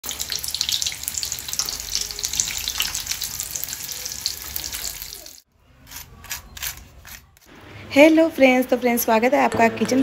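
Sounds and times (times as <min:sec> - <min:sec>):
food frying in hot oil: 0:00.0 - 0:05.4.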